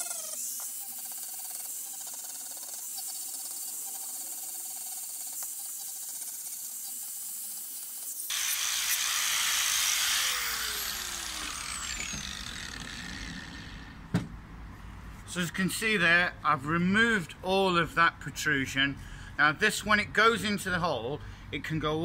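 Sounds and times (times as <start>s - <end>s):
grinder winding down whine: 0.0s - 4.3s, 8.3s - 14.0s
angle grinder grinding plastic: 0.0s - 7.1s, 7.9s - 14.0s.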